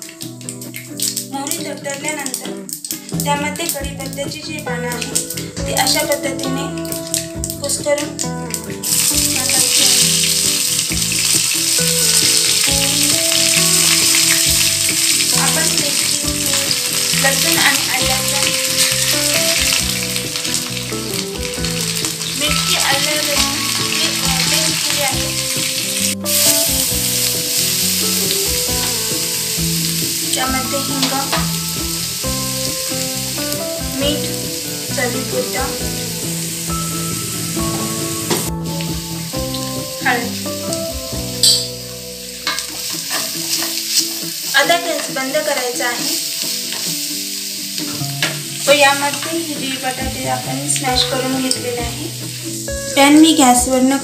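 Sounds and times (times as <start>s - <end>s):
spices sizzling in hot oil: 0.0s - 54.0s
spoon stirring in pan: 42.4s - 44.3s.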